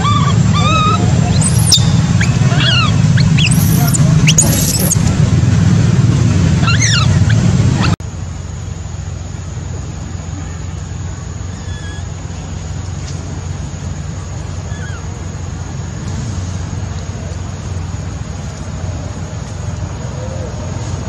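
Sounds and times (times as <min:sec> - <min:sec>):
baby monkey distress cries: 0:00.0 - 0:05.1, 0:06.6 - 0:08.0, 0:11.5 - 0:12.1, 0:14.7 - 0:15.1
faint chirps: 0:00.0 - 0:05.1, 0:08.7 - 0:16.0
loud low rumble: 0:00.0 - 0:21.0.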